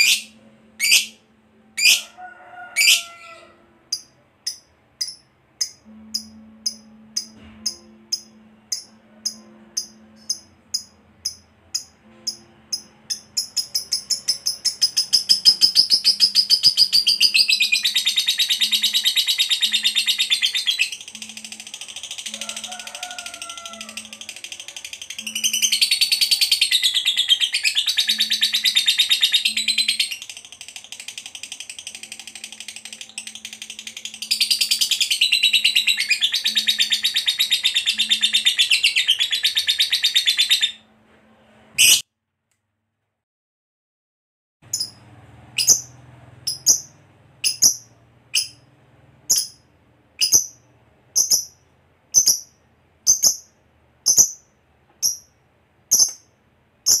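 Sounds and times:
bird chattering trill: 0.0 - 1.2, 1.8 - 2.0, 2.8 - 3.2, 3.9 - 40.8, 45.6 - 45.9, 46.5 - 48.6, 49.3 - 49.6, 50.2 - 50.6, 51.2 - 51.6, 52.2 - 53.5, 54.1 - 55.3
bird sharp chirps: 0.0 - 1.2, 4.0 - 21.5, 45.6 - 48.7, 50.2 - 50.6.

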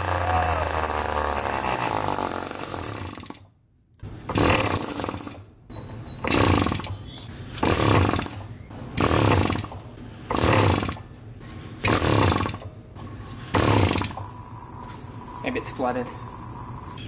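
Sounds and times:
two-stroke engine running roughly: 0.0 - 3.3, 4.3 - 5.2, 6.2 - 6.9, 7.6 - 8.3, 9.0 - 9.7, 10.3 - 11.0, 11.8 - 12.6, 13.6 - 14.3.

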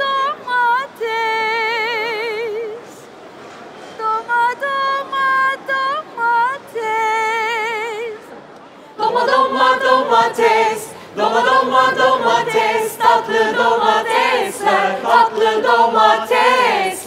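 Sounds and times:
woman singing unaccompanied: 0.0 - 2.8, 4.0 - 8.3.

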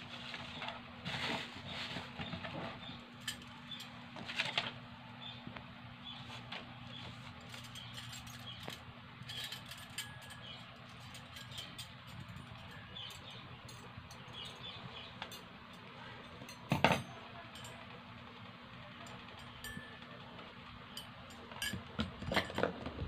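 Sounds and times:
mixer beaters clicking and clinking: 7.4 - 18.0, 19.0 - 20.2.

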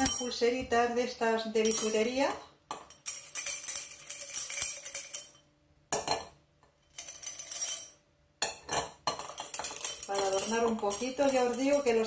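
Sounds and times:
bracelets rattling in a glass: 0.0 - 0.4, 1.6 - 5.4, 6.9 - 8.0, 8.7 - 12.0.

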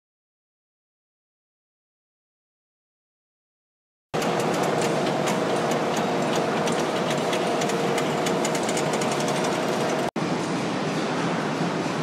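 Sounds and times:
rapid irregular clicking and rattling: 4.2 - 10.2
factory machinery droning: 4.2 - 12.0.

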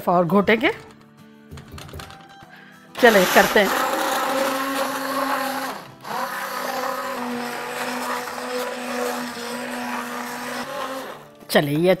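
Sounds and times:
immersion blender motor running: 3.0 - 11.4.

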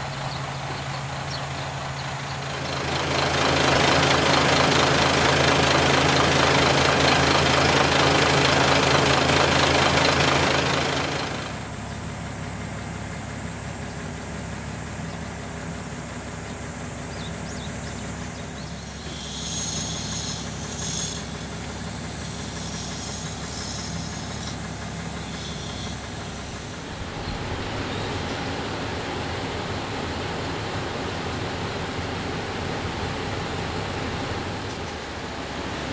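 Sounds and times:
diesel railcar engines idling: 0.0 - 35.9
high buzzing: 18.4 - 28.1.

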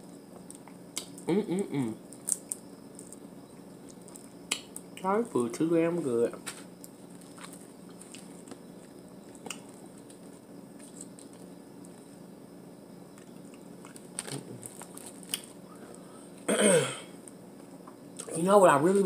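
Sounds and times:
steady low hum: 0.0 - 19.0
peeling and chewing shellfish: 2.0 - 5.0, 6.7 - 12.1, 13.1 - 16.0.

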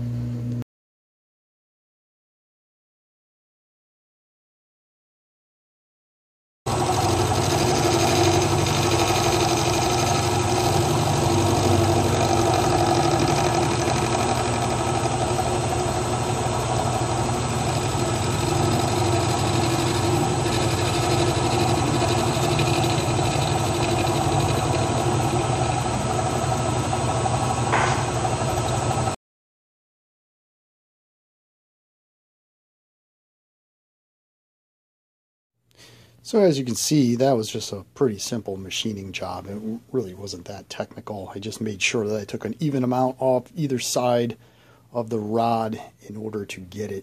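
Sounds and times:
milling machine hum: 6.7 - 29.2.

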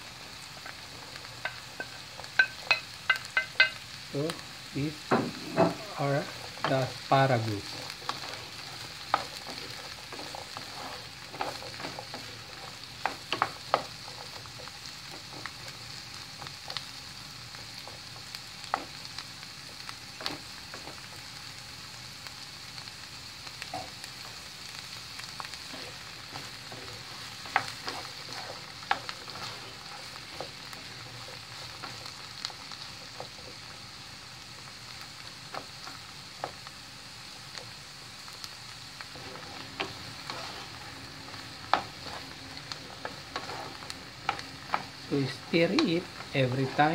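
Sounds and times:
vegetables sizzling in a frying pan: 0.0 - 46.9
wooden spoon scraping a pan: 0.6 - 3.8, 5.1 - 15.8, 25.3 - 33.7, 39.0 - 46.9.

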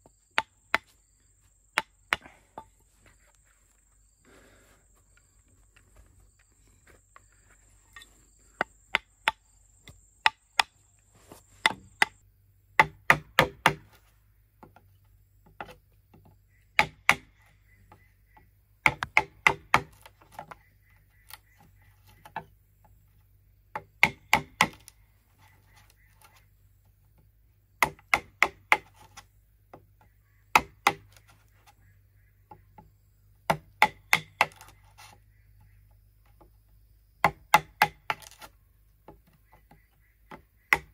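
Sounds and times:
bamboo being chopped: 0.3 - 1.0, 1.7 - 2.7, 8.6 - 12.2, 12.8 - 14.0, 15.4 - 17.4, 18.4 - 22.5, 23.7 - 25.0, 27.8 - 31.5, 33.4 - 35.2, 37.2 - 40.9.

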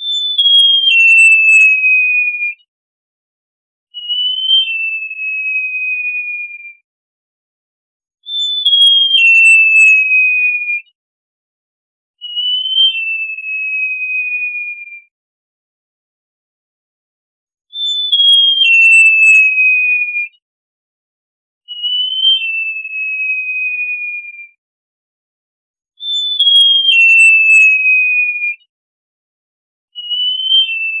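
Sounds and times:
bird whistling downward slides: 30.0 - 31.0.

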